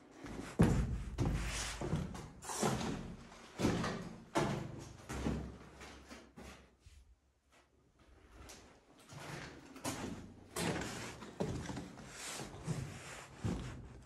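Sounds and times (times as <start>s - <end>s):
footsteps scuffing on gritty floor: 0.2s - 6.6s, 9.1s - 13.8s.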